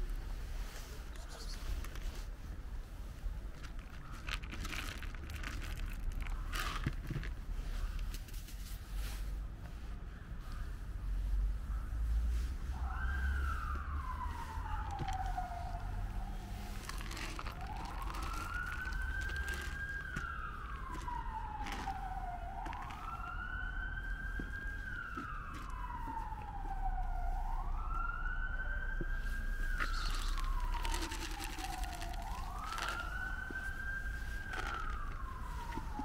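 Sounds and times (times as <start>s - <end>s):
siren wailing: 12.6s - 36.0s.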